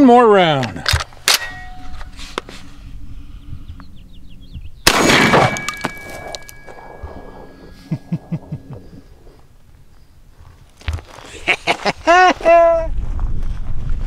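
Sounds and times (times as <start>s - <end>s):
thin ringing tone: 1.3s - 10.2s
shotgun shot: 4.8s - 6.3s.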